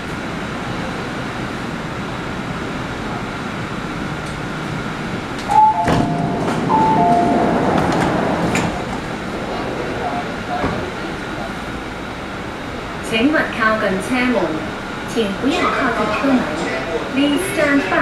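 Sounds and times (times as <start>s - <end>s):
train hum: 0.0s - 18.0s
doors sliding open: 5.4s - 9.2s
falling two-note chime: 5.5s - 7.6s.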